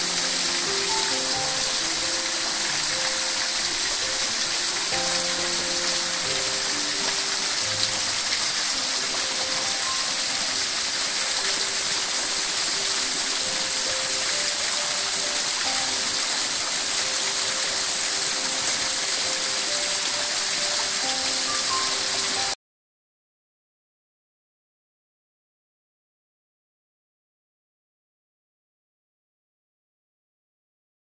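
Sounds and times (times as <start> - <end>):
soft background music: 0.0 - 22.6
waterfall splashing onto rock: 0.0 - 22.6.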